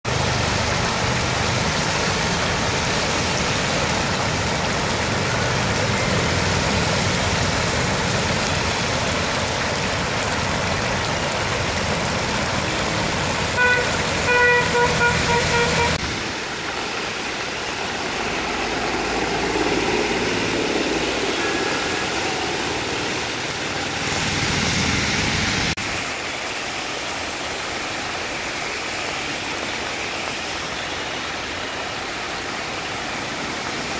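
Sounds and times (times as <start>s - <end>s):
tyres hissing on wet road: 0.1s - 33.9s
vehicle horn short beeps: 13.6s - 16.0s.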